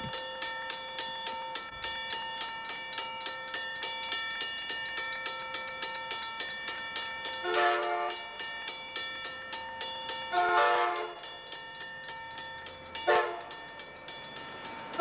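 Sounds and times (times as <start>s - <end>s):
railroad crossing bell ringing: 0.0s - 15.0s
train air horn blast: 7.4s - 8.2s, 10.3s - 11.2s.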